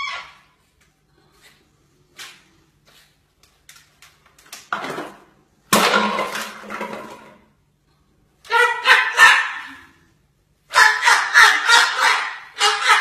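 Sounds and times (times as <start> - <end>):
cockatoo harsh screeches: 0.0 - 0.6.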